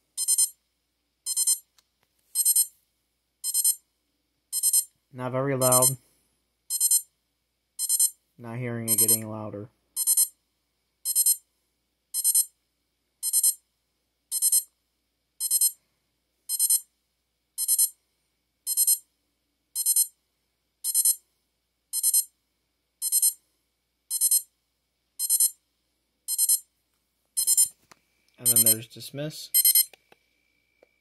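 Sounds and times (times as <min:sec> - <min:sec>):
alarm clock beeping: 0:00.1 - 0:00.6, 0:01.3 - 0:01.7, 0:02.4 - 0:02.7, 0:03.4 - 0:03.8, 0:04.5 - 0:04.9, 0:05.6 - 0:06.0, 0:06.7 - 0:07.1, 0:07.8 - 0:08.2, 0:08.8 - 0:09.3, 0:10.0 - 0:10.4, 0:11.0 - 0:11.4, 0:12.2 - 0:12.5, 0:13.2 - 0:13.6, 0:14.3 - 0:14.7, 0:15.4 - 0:15.8, 0:16.5 - 0:16.9, 0:17.6 - 0:18.0, 0:18.7 - 0:19.0, 0:19.8 - 0:20.2, 0:20.8 - 0:21.2, 0:21.9 - 0:22.3, 0:23.0 - 0:23.4, 0:24.1 - 0:24.5, 0:25.2 - 0:25.6, 0:26.3 - 0:26.7, 0:27.4 - 0:27.7, 0:28.4 - 0:28.8, 0:29.5 - 0:30.0.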